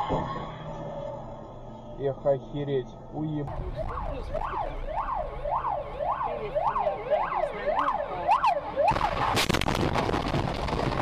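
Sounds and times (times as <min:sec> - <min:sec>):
ambulance siren: 0:03.2 - 0:09.6
loud rush of noise with cracks: 0:08.9 - 0:11.0.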